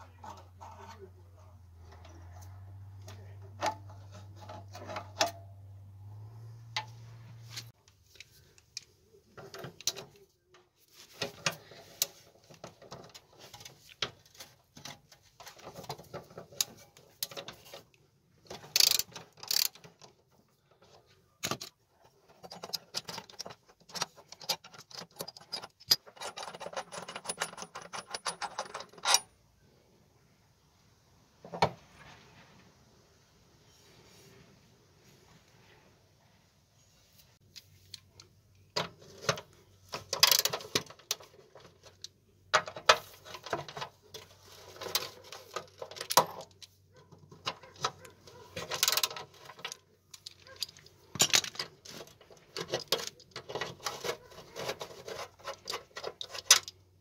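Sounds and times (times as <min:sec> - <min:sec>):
ratchet wrench clicking: 0:18.7 - 0:19.8.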